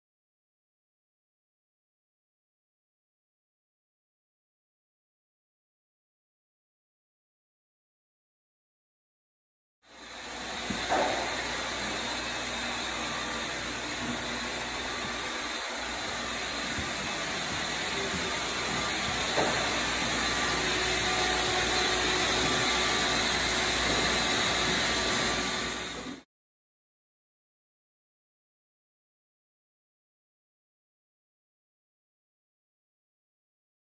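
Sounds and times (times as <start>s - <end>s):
shop vacuum running: 9.9s - 26.2s.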